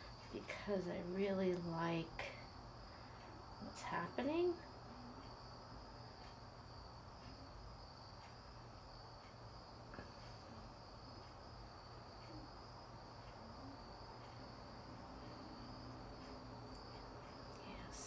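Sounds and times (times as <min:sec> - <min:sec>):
crickets and cicadas trilling: 0:00.0 - 0:18.0.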